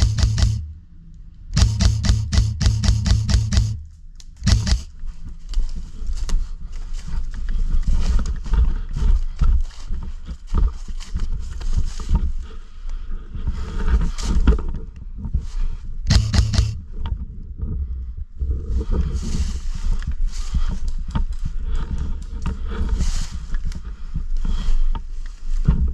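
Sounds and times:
wind rumble on microphone: 4.4 - 25.9
footsteps crunching through dry leaves: 4.5 - 12.4.

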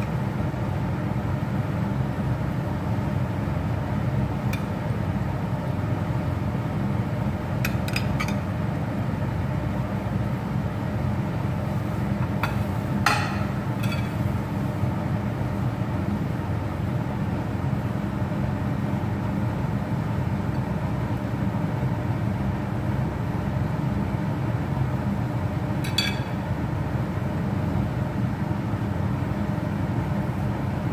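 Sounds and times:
low background hum: 0.0 - 30.9
metal utensil clinking on glass: 25.9 - 26.4.

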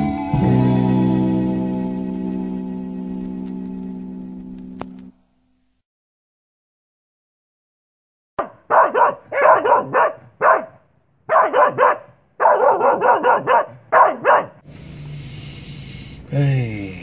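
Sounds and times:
dog barking: 8.4 - 14.6.

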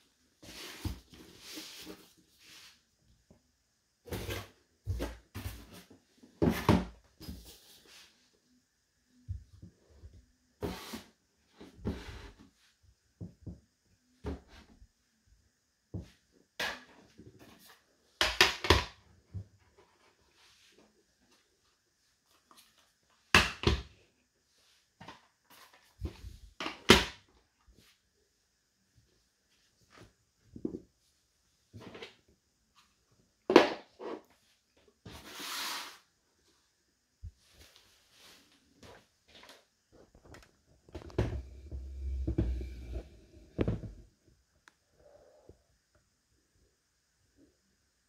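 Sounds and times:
rustling and rubbing: 0.4 - 2.9.

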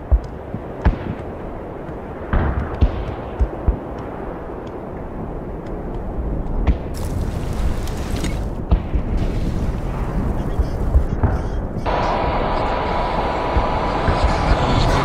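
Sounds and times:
low steady rumble: 4.2 - 15.0.

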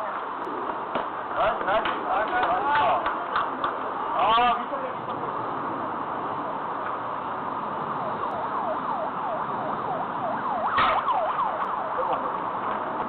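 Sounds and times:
siren in a fast yelp: 8.0 - 12.4
bat cracking against a ball: 10.7 - 11.1.

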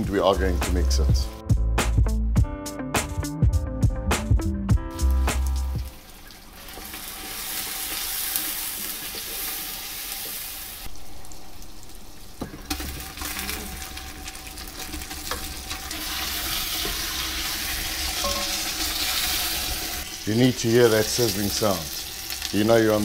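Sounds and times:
onions sizzling in oil: 4.9 - 23.0.

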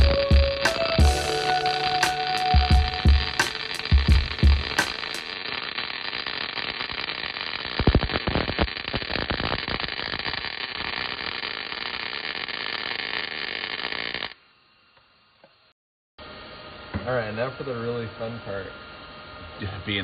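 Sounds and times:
welding arc crackling: 0.0 - 15.2.

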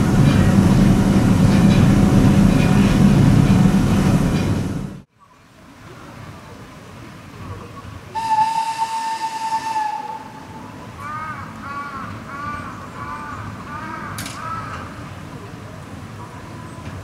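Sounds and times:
train whistle blast: 8.2 - 10.8
crow cawing: 11.0 - 14.9.

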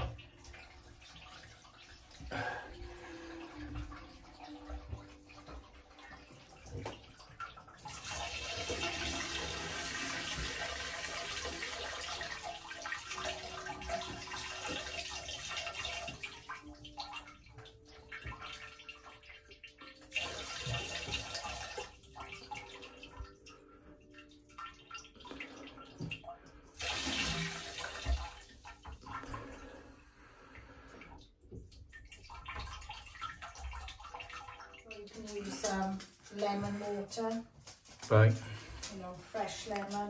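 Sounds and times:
water gushing: 0.0 - 23.3, 25.1 - 31.0.

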